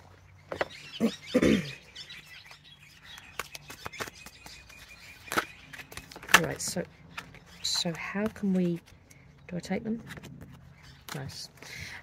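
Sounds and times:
birds chirping: 0.0 - 12.0
cards being shuffled: 3.2 - 9.1, 9.9 - 11.4.

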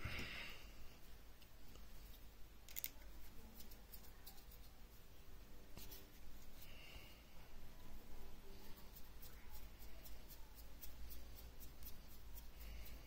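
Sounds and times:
handling small metal parts: 2.7 - 3.1.

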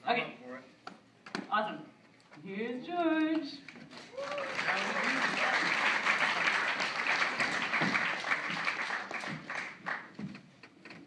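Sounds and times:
audience applauding: 3.9 - 10.2.

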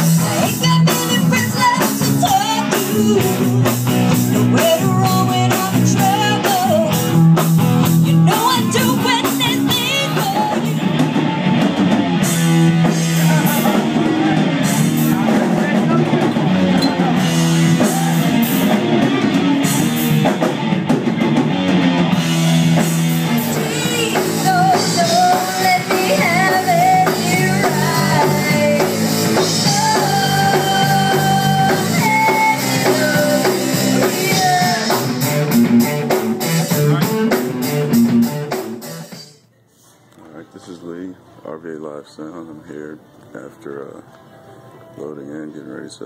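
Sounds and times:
person singing: 0.0 - 3.8, 4.4 - 7.0, 23.4 - 35.2
rock band playing: 0.0 - 39.4.

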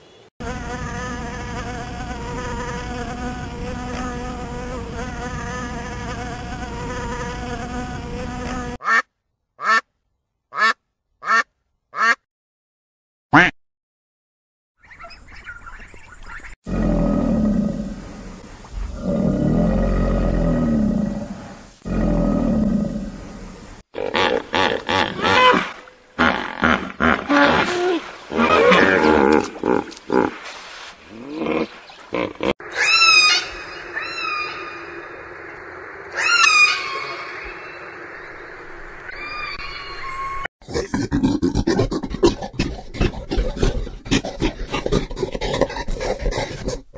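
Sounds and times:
caiman growling: 16.7 - 17.9, 18.9 - 23.1, 24.0 - 30.4, 40.6 - 46.9.

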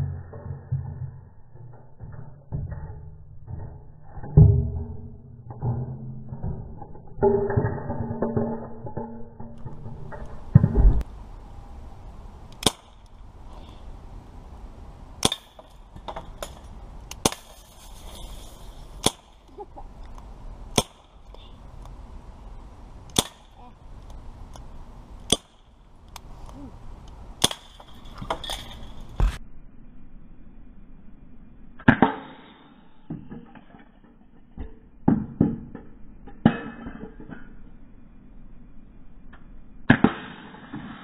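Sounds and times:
bb pistol shots: 12.6 - 13.0.

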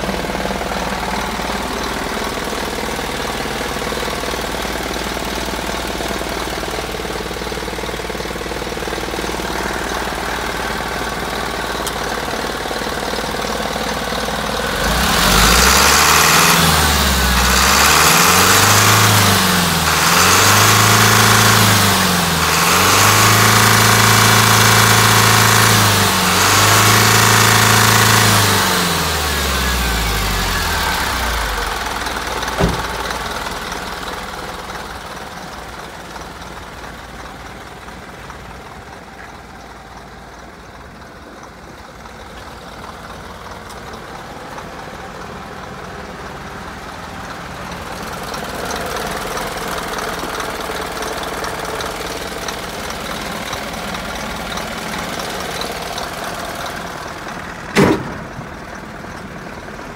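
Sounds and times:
truck diesel engine idling: 0.0 - 59.9
sharp knock: 32.6 - 33.0, 57.7 - 58.4.

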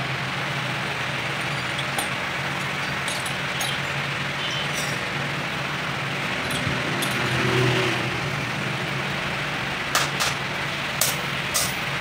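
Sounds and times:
engine droning: 0.0 - 12.0
hand tools clicking: 1.4 - 4.0.

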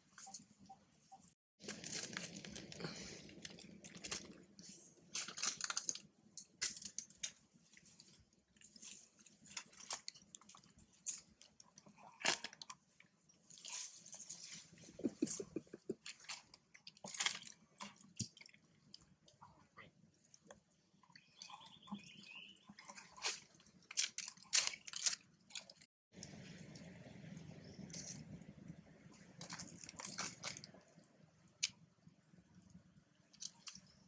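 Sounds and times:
monkeys rustling and smacking: 13.6 - 18.6.

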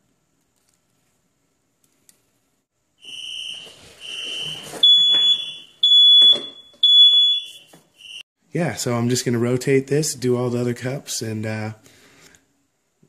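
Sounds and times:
smoke alarm beeping: 3.0 - 8.2.

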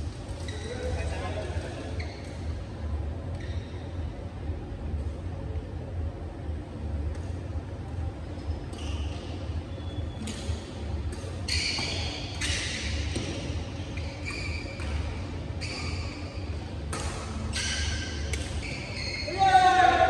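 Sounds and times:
shoes squeaking on court floor: 0.0 - 2.6, 3.3 - 4.0, 8.4 - 19.6
steady low hum: 0.0 - 19.3
rackets smacking shuttlecock: 16.9 - 18.8.

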